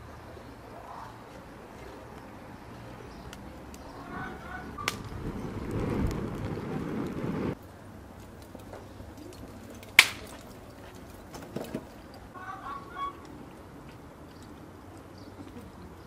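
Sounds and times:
fire rushing: 0:03.3 - 0:07.6
sharp crack: 0:03.3 - 0:07.6, 0:08.3 - 0:10.6.

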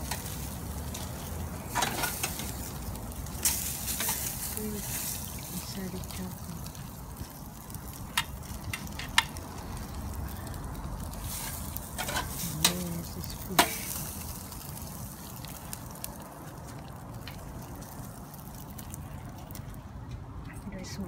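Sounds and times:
fish sizzling on a grill: 0:00.0 - 0:20.1
fire popping and crackling: 0:00.0 - 0:21.0.

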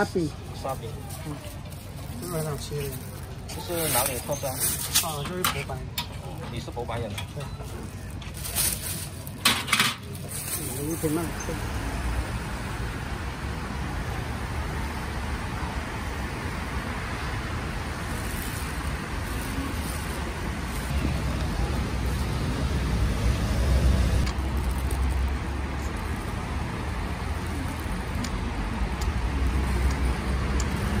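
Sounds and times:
road traffic rumble: 0:00.0 - 0:31.0
vehicle passing by: 0:11.1 - 0:27.3.

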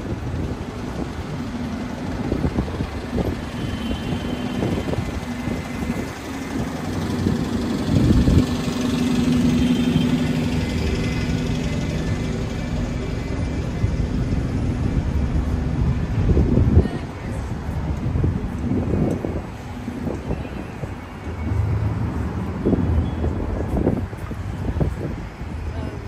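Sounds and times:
engine running: 0:00.0 - 0:16.8.

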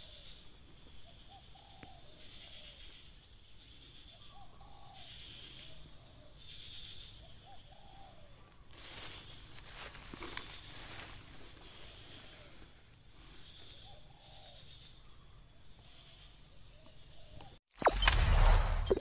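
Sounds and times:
doves cooing: 0:01.0 - 0:02.9, 0:04.1 - 0:12.6, 0:13.5 - 0:15.2.

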